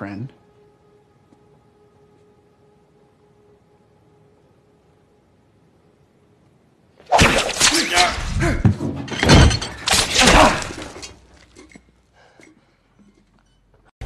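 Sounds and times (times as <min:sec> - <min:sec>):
things shattering: 0:07.2 - 0:11.8.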